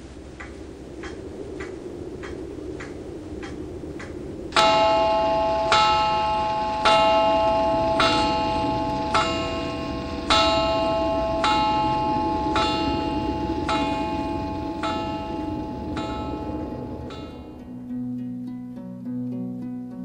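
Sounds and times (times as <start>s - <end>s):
clock ticking: 0.4s - 17.6s
bell tolling: 4.6s - 17.8s.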